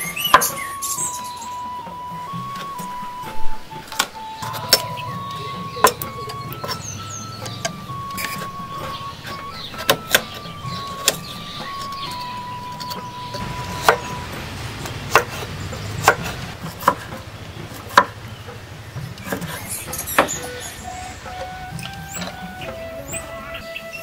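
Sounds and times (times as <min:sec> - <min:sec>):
soft background music: 0:00.0 - 0:24.0
knife chopping on wooden board: 0:13.4 - 0:14.1, 0:14.8 - 0:18.2.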